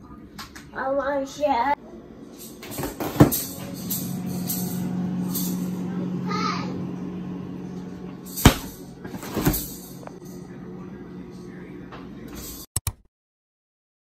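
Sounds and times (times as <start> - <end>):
refrigerator humming: 0.0 - 12.7
fridge door clattering open: 2.5 - 5.6, 8.3 - 10.1
freezer door thudding shut: 8.4 - 9.8.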